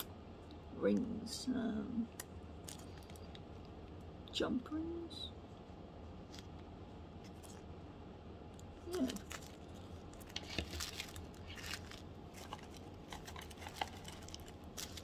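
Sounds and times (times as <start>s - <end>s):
plastic bag crinkling: 8.8s - 15.0s.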